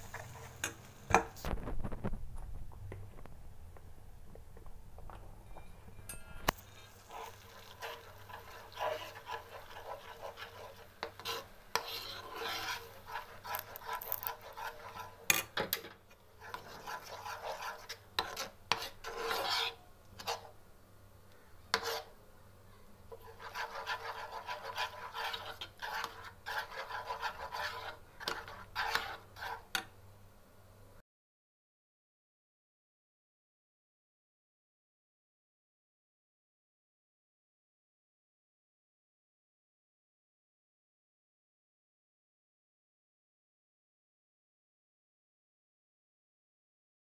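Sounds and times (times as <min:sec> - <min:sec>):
metal spoon scraping a steel pan: 0:05.5 - 0:15.6, 0:16.4 - 0:20.5, 0:21.7 - 0:22.1, 0:23.1 - 0:29.9.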